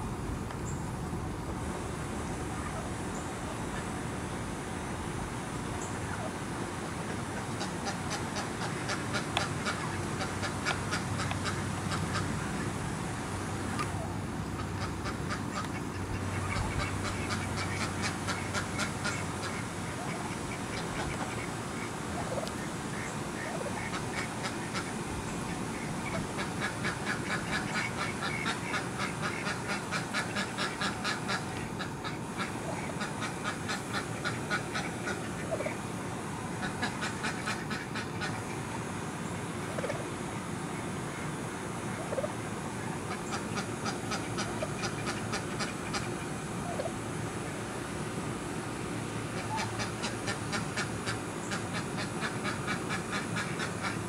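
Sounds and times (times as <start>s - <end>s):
turkey hen calling: 2.5s - 4.0s, 5.8s - 6.4s, 7.0s - 12.8s, 13.6s - 47.1s, 49.3s - 54.0s.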